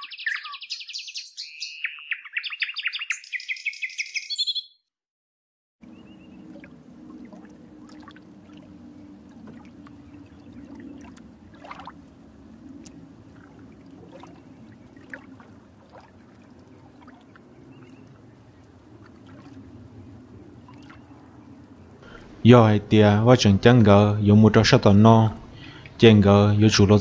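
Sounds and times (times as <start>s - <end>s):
bird chirps: 0.0s - 4.8s, 5.8s - 6.5s
low rumbling hiss: 19.6s - 27.0s.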